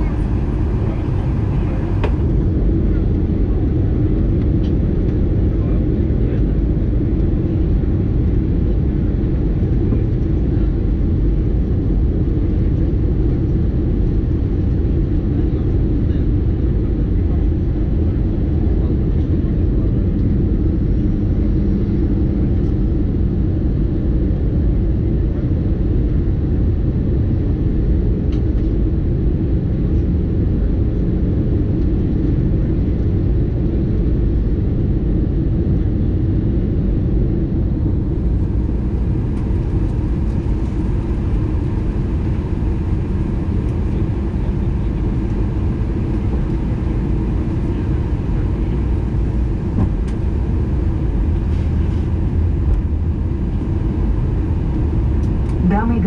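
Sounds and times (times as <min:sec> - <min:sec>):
faint low hum: 0:00.0 - 0:02.6
airliner cabin rumble: 0:00.0 - 0:56.0.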